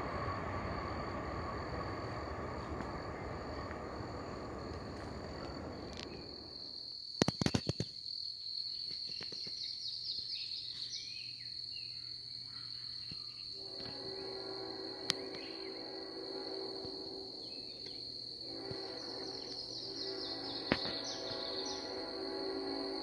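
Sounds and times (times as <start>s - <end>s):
low steady tone: 0.0s - 6.6s
high-pitched insect drone: 0.0s - 6.8s, 13.5s - 23.0s
freight train rumbling past: 0.0s - 6.9s, 13.6s - 23.0s.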